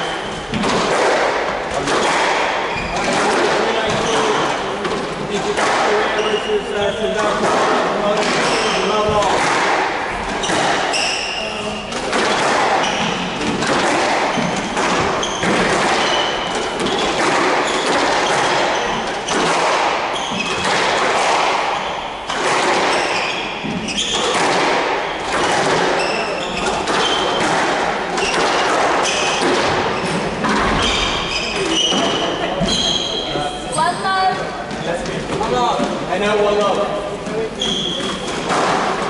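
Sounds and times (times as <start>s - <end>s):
squash ball thuds: 0.0s - 32.8s
shoe squeaks on wooden floor: 2.6s - 4.7s, 5.9s - 7.5s, 8.2s - 9.4s, 10.2s - 20.8s, 21.7s - 27.5s, 28.2s - 34.4s, 37.3s - 38.5s.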